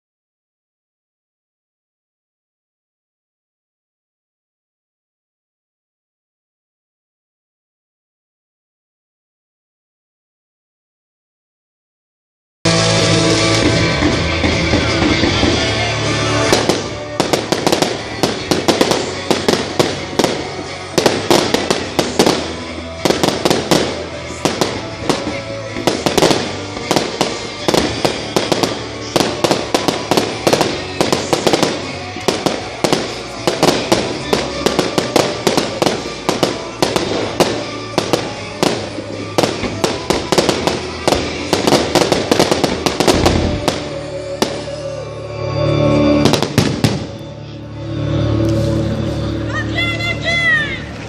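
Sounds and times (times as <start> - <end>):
fireworks bangs and crackles: 12.7 - 45.0, 46.2 - 47.3
music: 12.7 - 51.0.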